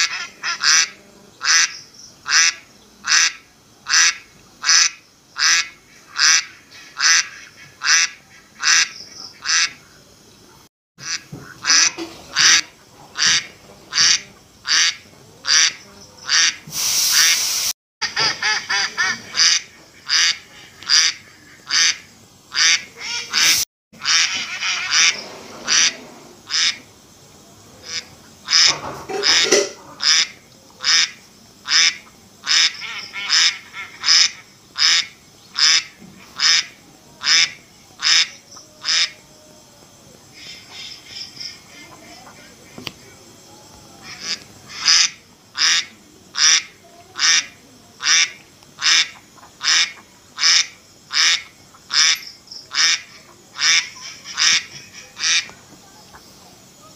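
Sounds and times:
ducks quacking: 0.0s - 10.0s, 11.0s - 17.3s, 18.0s - 26.9s, 27.8s - 39.3s, 40.3s - 43.1s, 44.0s - 56.3s
short loud burst of noise: 16.6s - 17.7s.

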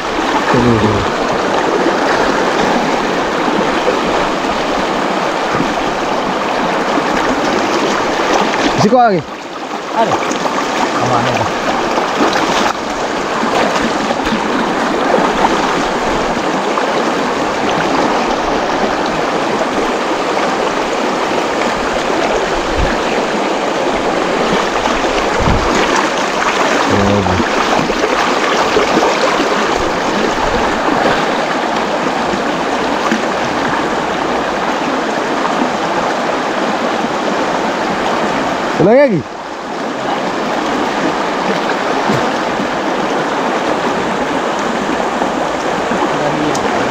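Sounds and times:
river rushing over rocks: 0.0s - 46.9s
dull low bumps: 24.8s - 26.0s.

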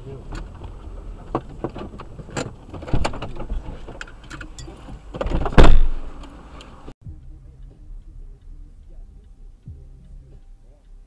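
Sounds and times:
car door slamming: 1.3s - 3.6s, 5.2s - 6.2s.

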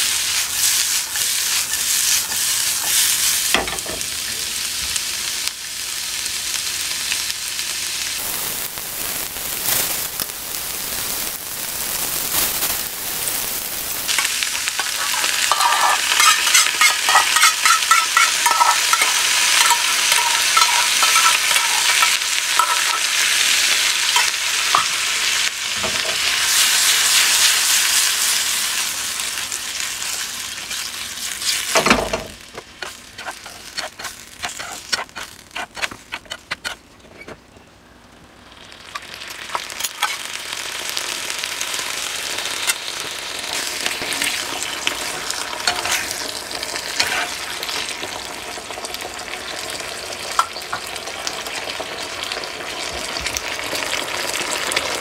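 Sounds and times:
vegetables sizzling in frying pan: 0.0s - 36.6s, 38.1s - 55.0s
wooden spatula scraping pan: 14.8s - 22.8s, 32.8s - 36.8s.

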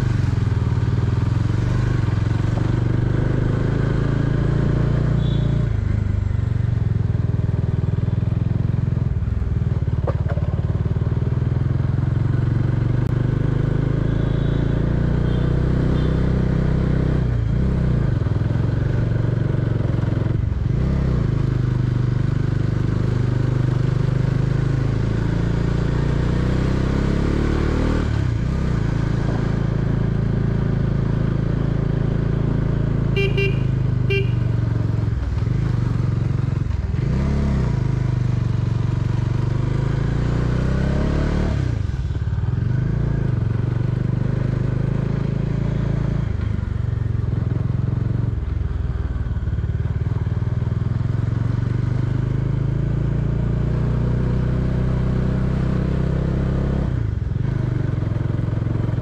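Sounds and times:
horn toots: 5.1s - 5.8s, 33.1s - 34.6s.

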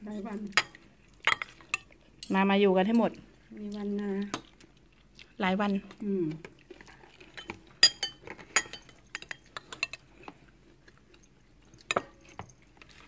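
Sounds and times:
cutlery clinking against plates: 7.3s - 10.4s, 11.8s - 12.6s.

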